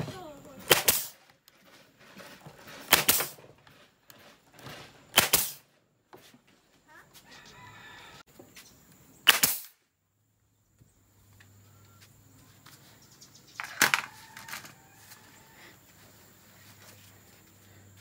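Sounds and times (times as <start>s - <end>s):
brad nailer firing: 0.6s - 1.3s, 2.6s - 3.6s, 5.1s - 5.7s, 9.2s - 9.8s.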